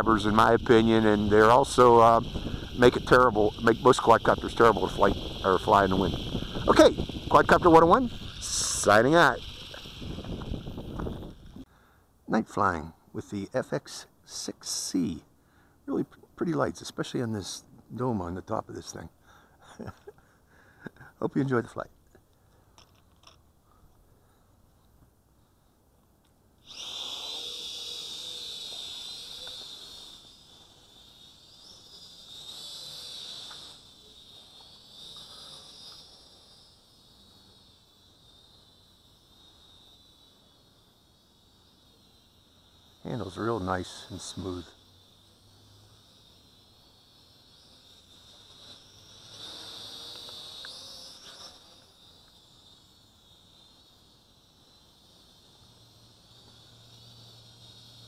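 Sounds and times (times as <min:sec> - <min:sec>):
toy drone propellers whining: 0:00.0 - 0:11.7, 0:26.6 - 0:58.0
crickets trilling: 0:00.0 - 0:58.0.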